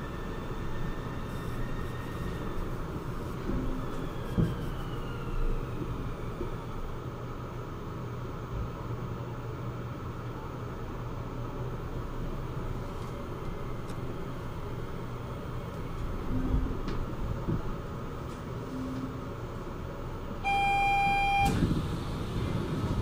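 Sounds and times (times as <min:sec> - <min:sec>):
train humming: 0:00.0 - 0:08.5, 0:09.2 - 0:23.0
loud electronic beep: 0:20.4 - 0:21.6.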